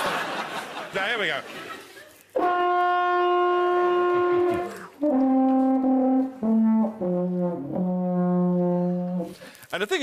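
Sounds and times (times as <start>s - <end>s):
alphorn notes: 2.4s - 9.4s.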